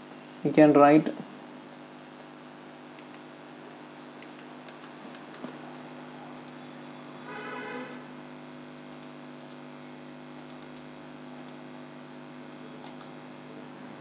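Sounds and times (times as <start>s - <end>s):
low electrical hum: 0.0s - 14.0s
computer mouse clicks: 3.0s - 5.6s, 6.3s - 6.6s, 7.8s - 8.0s, 8.9s - 9.6s, 10.4s - 11.6s, 12.8s - 13.2s.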